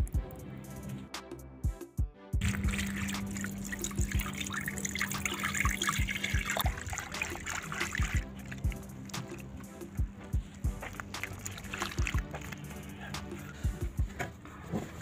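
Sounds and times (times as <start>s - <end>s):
background music with steady beat: 0.0s - 15.0s
liquid pouring onto flour: 2.4s - 9.5s, 10.7s - 12.7s.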